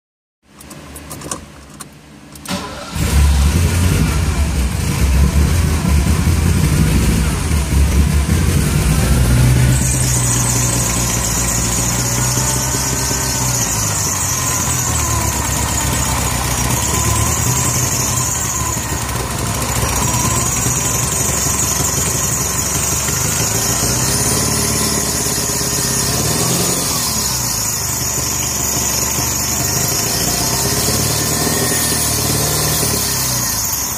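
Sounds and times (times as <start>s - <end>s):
car engine running and idling: 0.5s - 33.9s
high engine whine: 0.6s - 33.9s
starter motor cranking: 7.9s - 33.9s.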